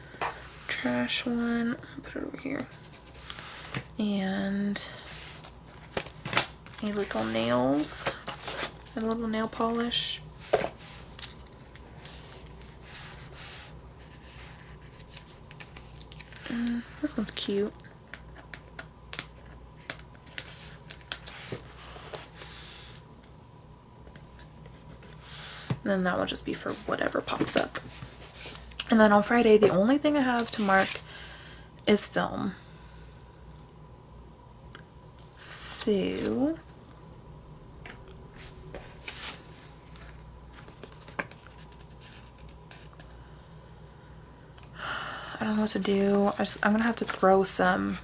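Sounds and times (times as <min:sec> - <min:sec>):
paper rustling: 0:38.7 - 0:43.1.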